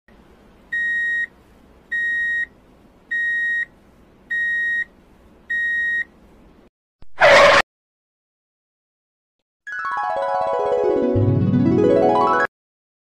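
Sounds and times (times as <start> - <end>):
truck reversing alarm beeps: 0.8 - 1.3, 1.9 - 2.5, 3.1 - 3.7, 4.3 - 4.9, 5.5 - 6.1.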